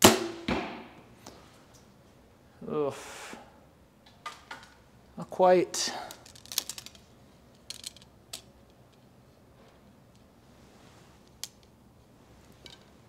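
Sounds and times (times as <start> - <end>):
archery gear clicking and rattling: 6.0 - 9.1.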